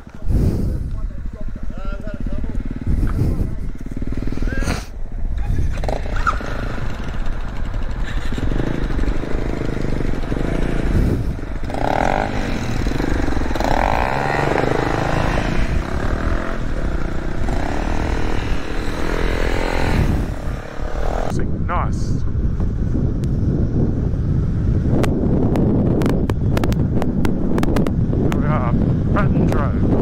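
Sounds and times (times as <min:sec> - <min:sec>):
motorcycle engine running: 0:00.0 - 0:21.3
clatter: 0:05.6 - 0:10.9.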